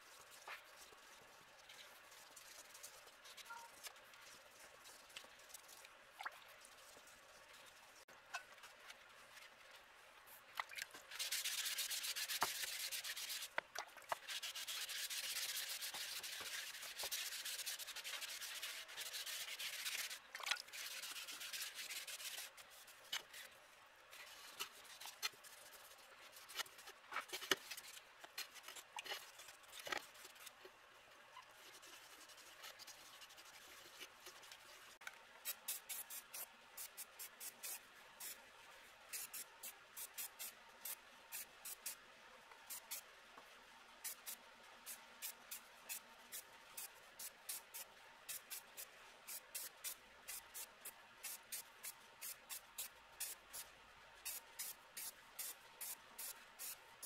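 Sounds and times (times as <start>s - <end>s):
scratchy hand rubbing: 14.2s - 23.5s.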